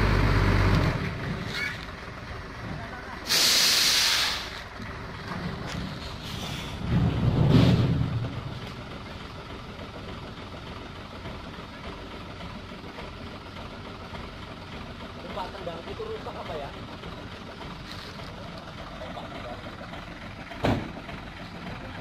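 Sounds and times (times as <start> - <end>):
diesel engine revving and idling: 0.0 - 22.0
air brake hiss: 3.2 - 4.7, 6.2 - 6.8.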